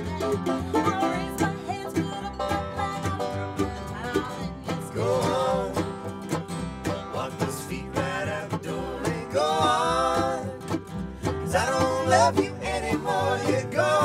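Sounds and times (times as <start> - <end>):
banjo picking: 0.0 - 14.0
bluegrass band playing: 0.0 - 14.0
woman singing lead: 0.6 - 6.0, 11.4 - 14.0
man singing along: 4.4 - 6.1, 6.9 - 14.0.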